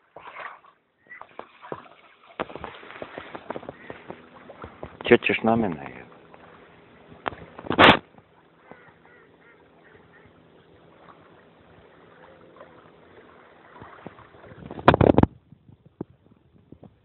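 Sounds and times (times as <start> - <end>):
swans honking softly: 3.0 - 7.6, 8.3 - 14.3.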